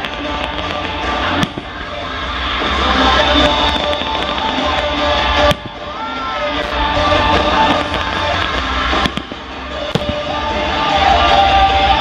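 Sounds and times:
firework bangs: 0.0 - 11.4
music playing: 0.0 - 12.0.

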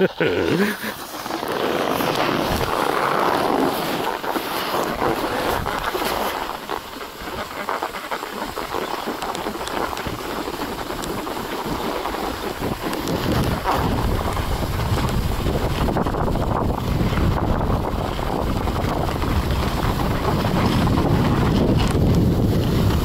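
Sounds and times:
skis scraping on snow: 0.0 - 23.0
wind rumbling on microphone: 0.0 - 23.0.

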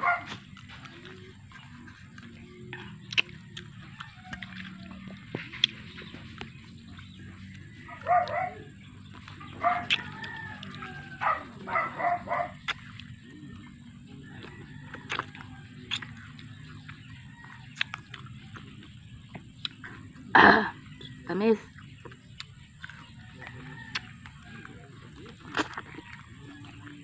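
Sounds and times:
chickens calling: 0.0 - 27.0
sharp clicks and smacks of eating: 0.2 - 27.0
rooster crowing: 3.6 - 5.4, 9.5 - 12.5, 14.1 - 18.2, 23.1 - 25.3.

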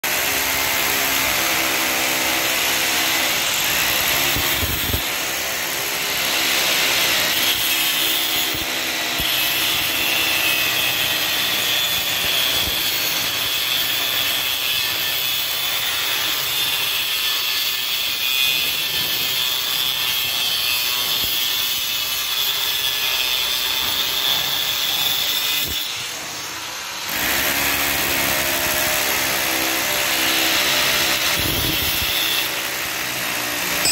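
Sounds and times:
angle grinder cutting steel: 0.0 - 33.9
grinder motor whining: 29.4 - 33.9.

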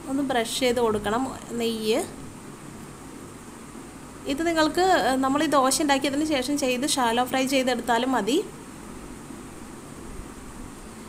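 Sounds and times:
low background hiss: 0.0 - 11.0.

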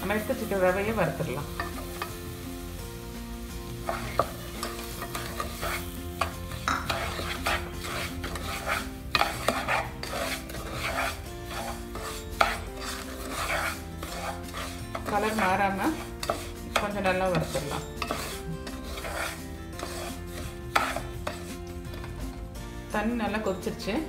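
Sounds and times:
light sizzle: 0.0 - 23.9
wooden spatula scraping a pot: 3.8 - 22.4.

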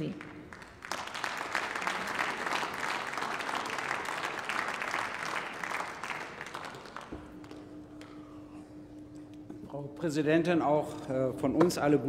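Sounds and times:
many hands clapping: 0.0 - 8.3
low steady hum: 0.0 - 12.0.

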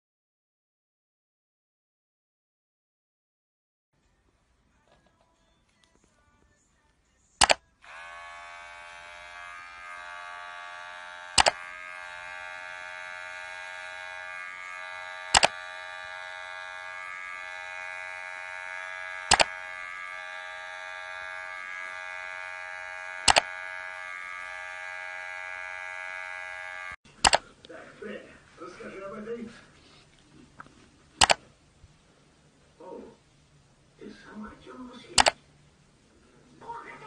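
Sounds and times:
electric motor buzzing: 7.8 - 27.0
loud sharp click: 11.4 - 11.6, 15.3 - 15.6, 19.3 - 19.5, 27.2 - 27.4, 31.2 - 31.4.

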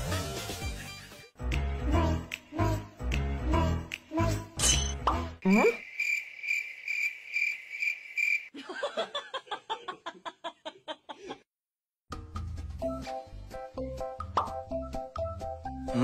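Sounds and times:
music: 0.0 - 5.4, 12.1 - 16.0
cricket chirping: 5.5 - 8.5.

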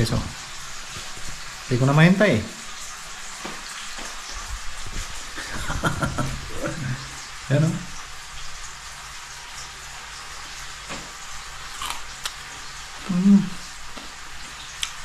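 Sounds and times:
person humming while chewing: 13.0 - 13.7.

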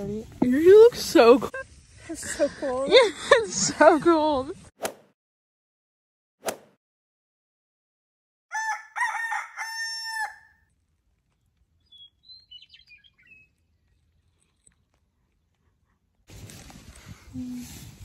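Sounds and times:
rooster crowing: 8.5 - 10.6
faint high bird chirps: 11.8 - 14.8.

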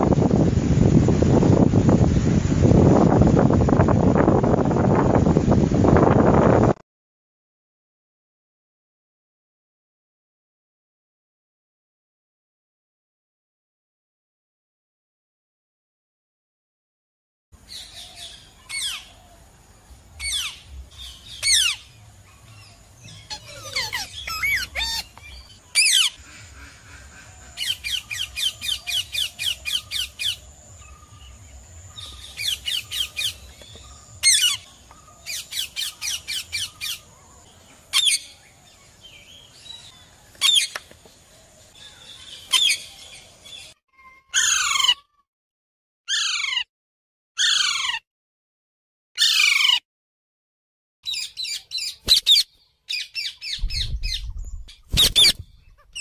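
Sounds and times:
parakeet squawking and screeching: 23.1 - 26.2, 44.3 - 45.2, 46.1 - 46.7, 47.4 - 48.0, 49.2 - 49.8, 51.1 - 56.0.

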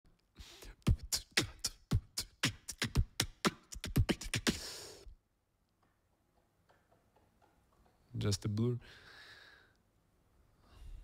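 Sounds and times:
person beatboxing into a microphone: 0.4 - 5.1.

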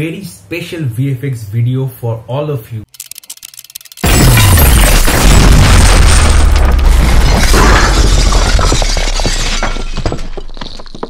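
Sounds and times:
fragments clattering down: 4.0 - 11.0
stone pillar crashing: 4.0 - 11.0.

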